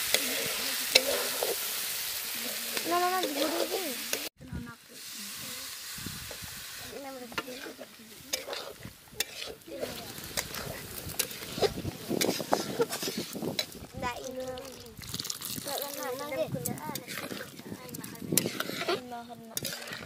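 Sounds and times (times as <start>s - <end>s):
metal spatula scraping a pan: 0.0s - 4.3s, 6.3s - 13.8s, 16.7s - 20.0s
curry sizzling in a pan: 0.0s - 20.0s.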